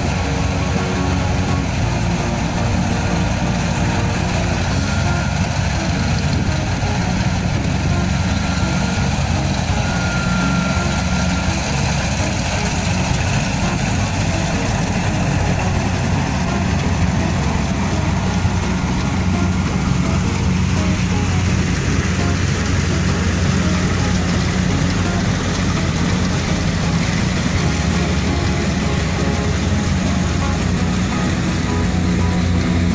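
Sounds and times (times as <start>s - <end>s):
combine harvester diesel engine: 0.0s - 32.9s.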